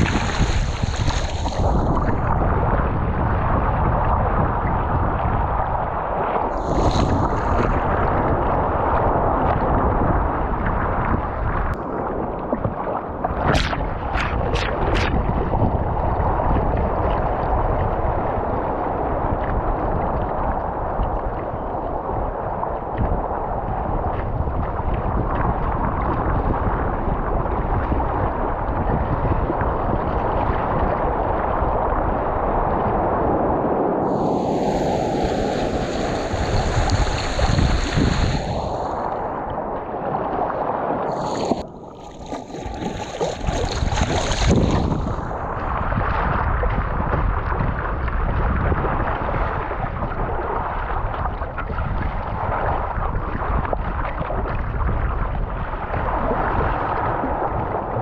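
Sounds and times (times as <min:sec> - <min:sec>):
water streaming past: 0:00.0 - 0:03.6, 0:06.0 - 0:09.5, 0:34.0 - 0:46.8
wind buffeting microphone: 0:00.0 - 0:58.0.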